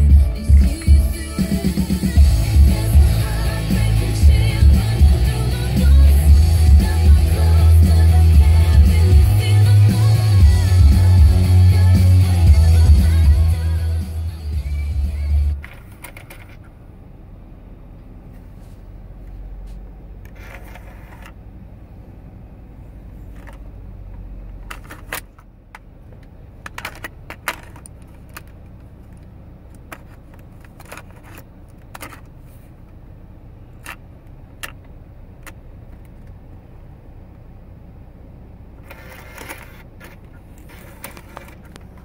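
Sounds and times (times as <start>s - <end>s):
low hum: 0.0s - 42.0s.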